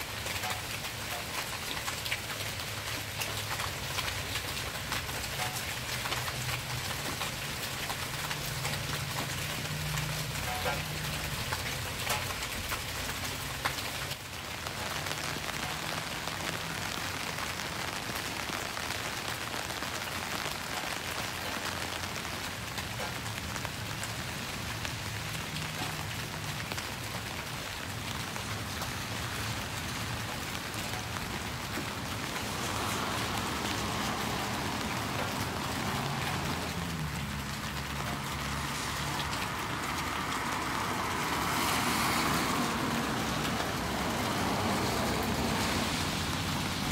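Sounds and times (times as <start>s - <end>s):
car on wet road: 0.0s - 46.9s
rain on pavement: 0.0s - 46.9s.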